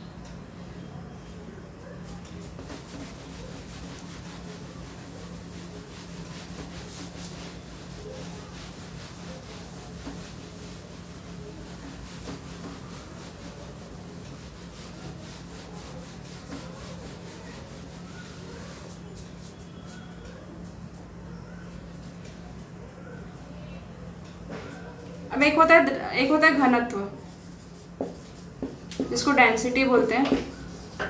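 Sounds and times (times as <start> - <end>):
cloth rubbing a whiteboard: 2.4 - 20.2, 27.2 - 31.0.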